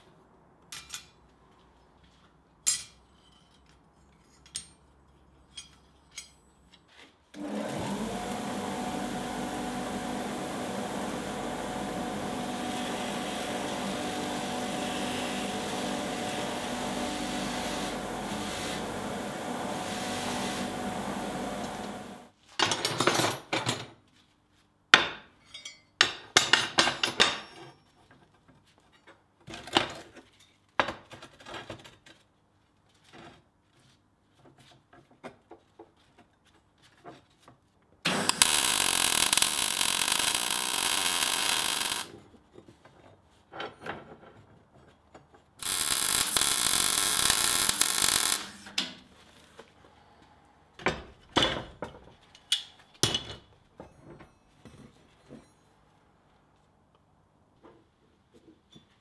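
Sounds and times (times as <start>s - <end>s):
bench grinder running: 7.4s - 22.3s, 38.1s - 42.1s, 45.6s - 48.8s
welding crackling hiss: 38.1s - 42.1s, 45.6s - 48.8s.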